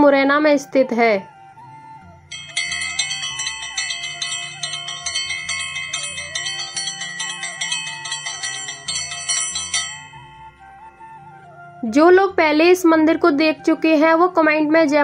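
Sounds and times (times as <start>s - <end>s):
devotional music: 0.0s - 15.0s
temple bells ringing: 2.3s - 11.4s.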